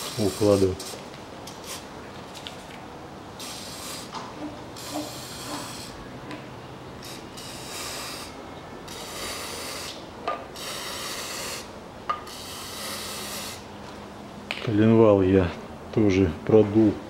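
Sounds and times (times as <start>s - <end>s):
aerosol can spraying: 0.0s - 1.8s, 3.4s - 4.2s, 4.8s - 6.0s, 7.0s - 8.3s, 8.9s - 10.0s, 10.6s - 13.6s.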